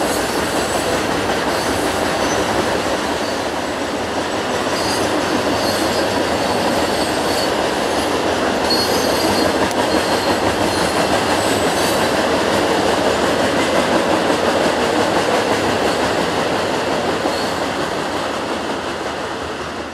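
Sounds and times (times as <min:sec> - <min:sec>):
freight train wheels rumbling: 0:00.0 - 0:19.9
faint wheel squeal: 0:08.7 - 0:11.6.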